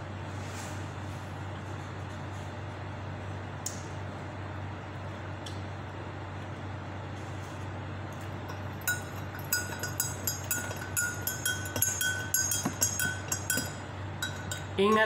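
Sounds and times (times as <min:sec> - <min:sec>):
low steady hum: 0:00.0 - 0:15.0
spoon clinking against glass: 0:08.5 - 0:15.0.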